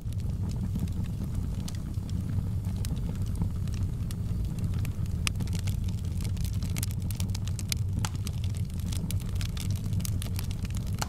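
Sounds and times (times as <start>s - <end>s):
fire crackling and popping: 0.0s - 11.0s
low rumble of flames: 0.0s - 11.0s.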